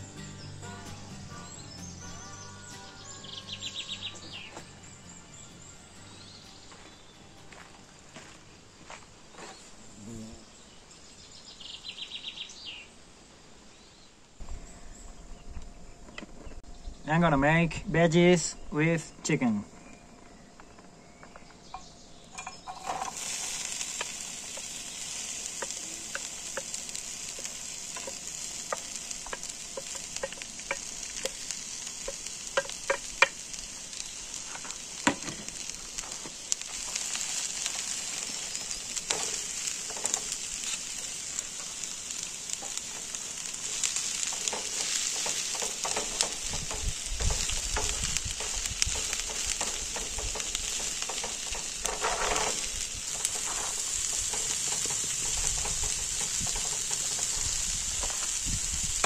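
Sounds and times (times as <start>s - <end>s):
vegetables sizzling in a frying pan: 0.0s - 12.9s, 21.6s - 59.0s
wooden spatula scraping a pan: 22.4s - 33.6s, 34.3s - 58.4s.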